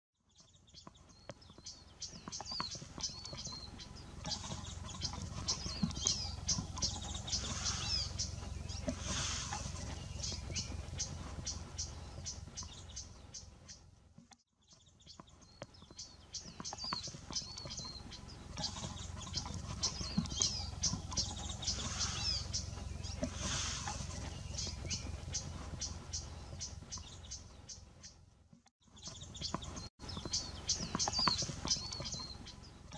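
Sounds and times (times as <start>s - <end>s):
small songbirds chipping and twittering: 0.2s - 32.9s
steady low rumble: 3.6s - 13.6s, 17.9s - 26.9s.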